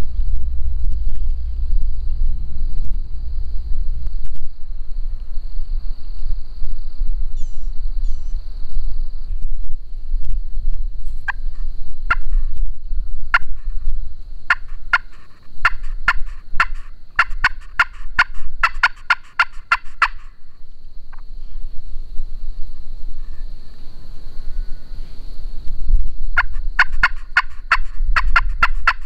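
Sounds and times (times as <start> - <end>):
friction turkey call yelps: 12.1 - 12.4, 13.3 - 13.7, 14.5 - 20.4, 26.4 - 29.0.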